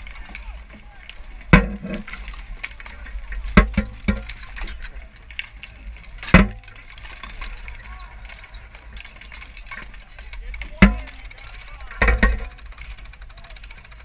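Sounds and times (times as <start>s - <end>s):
distant battle noise: 0.0s - 13.7s
sharp knocks and clanks: 1.5s - 2.4s, 3.5s - 4.8s, 6.2s - 7.6s, 9.0s - 11.2s, 11.9s - 12.6s
people shouting: 7.6s - 8.9s.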